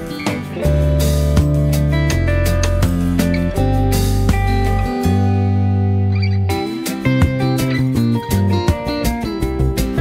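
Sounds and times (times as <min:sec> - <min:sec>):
held chord background music: 0:00.0 - 0:10.0.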